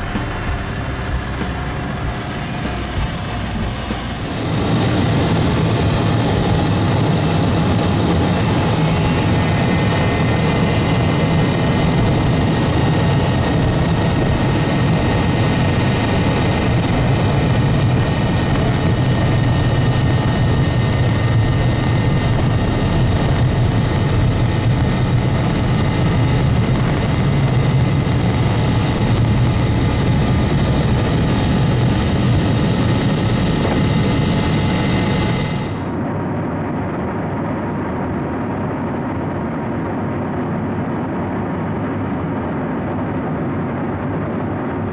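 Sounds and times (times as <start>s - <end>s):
jet engines roaring with turbine whine: 0.0s - 44.9s.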